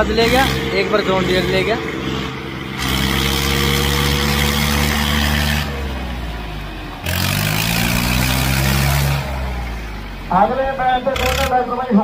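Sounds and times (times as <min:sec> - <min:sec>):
diesel tractor engines revving: 0:00.0 - 0:12.0.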